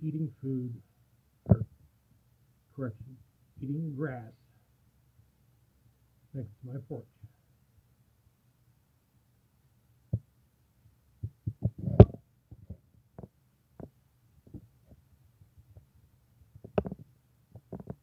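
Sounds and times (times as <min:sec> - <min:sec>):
faint low hum: 0:00.0 - 0:18.0
knocks and bumps on microphone: 0:01.5 - 0:01.8, 0:11.2 - 0:15.0, 0:16.6 - 0:18.0.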